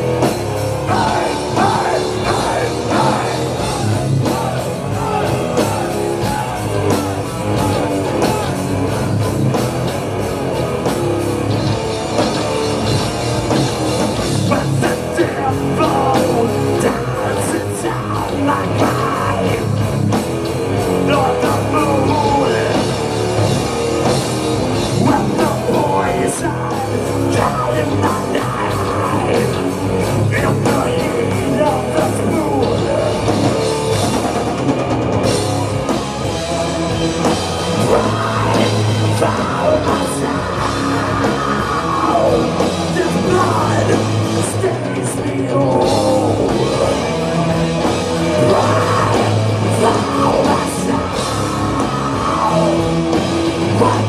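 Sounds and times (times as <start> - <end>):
drums: 0.0 - 54.0
electric guitars: 0.0 - 54.0
person singing: 0.8 - 9.2, 24.9 - 29.6, 37.6 - 54.0.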